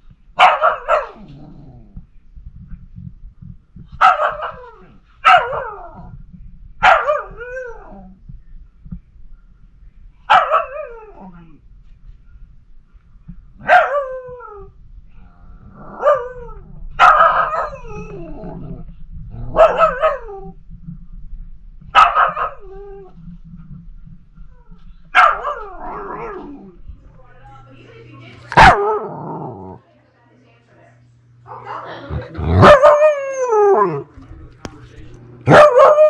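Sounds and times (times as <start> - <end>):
puppy howling barks: 6.8 - 7.9, 10.3 - 11.2, 13.6 - 14.5, 16.0 - 18.2, 19.5 - 20.5, 22.0 - 22.7, 25.2 - 26.5, 28.5 - 29.1, 31.5 - 34.1, 35.5 - 36.0.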